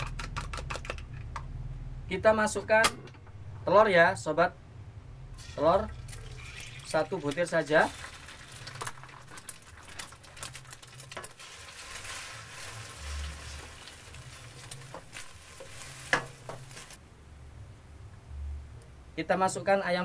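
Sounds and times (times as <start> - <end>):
egg sizzling in hot oil: 5.4 - 17.0.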